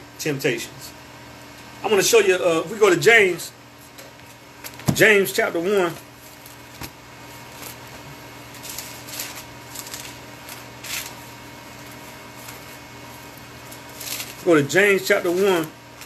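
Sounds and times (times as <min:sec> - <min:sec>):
low room hum: 0:00.0 - 0:16.0
pages rustling: 0:06.2 - 0:14.5.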